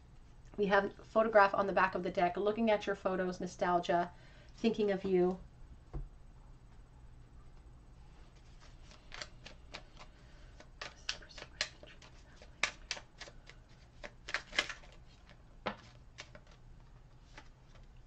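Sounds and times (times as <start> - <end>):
cards being shuffled: 8.3 - 17.9.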